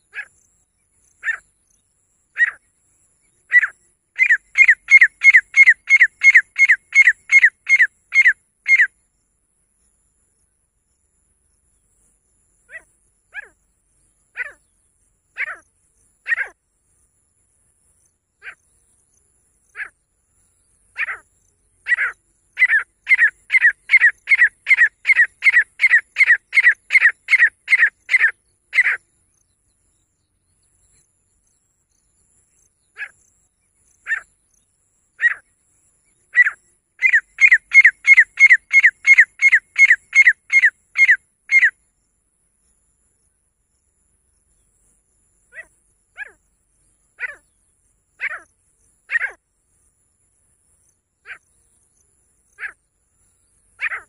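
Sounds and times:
francolin calling: 0:00.0 - 0:09.0, 0:12.6 - 0:16.6, 0:19.6 - 0:29.4, 0:32.5 - 0:41.8, 0:45.4 - 0:49.4, 0:50.8 - 0:54.0.

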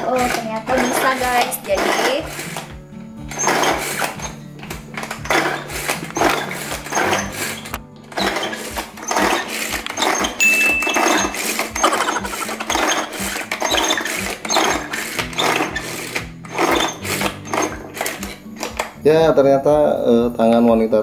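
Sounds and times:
pull-cord chopper blades whirring: 0:00.0 - 0:02.6, 0:05.0 - 0:18.8
background music: 0:00.0 - 0:21.0.

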